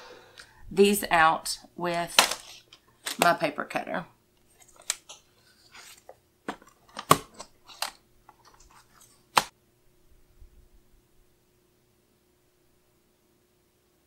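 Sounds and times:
paper rustling: 4.5 - 9.5.

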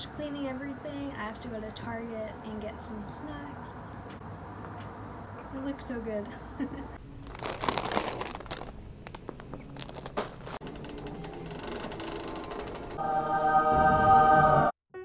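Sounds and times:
plastic snack bags crinkling: 7.1 - 11.0
shopping cart rattling: 7.3 - 13.0.

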